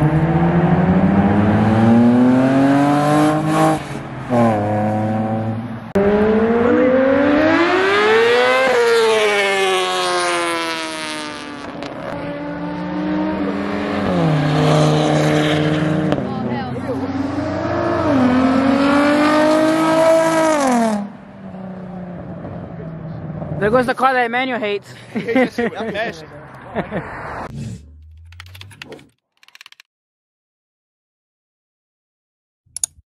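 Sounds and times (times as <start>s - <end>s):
motorcycle revving past: 0.0s - 21.1s
car accelerating through gears: 0.0s - 23.6s.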